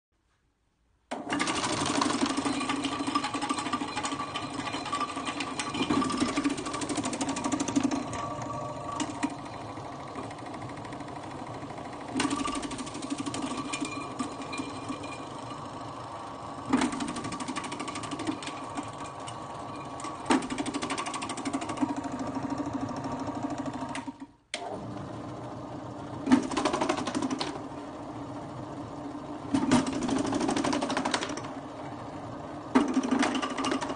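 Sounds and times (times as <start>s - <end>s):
spinning cutting disc rattle: 1.3s - 22.0s.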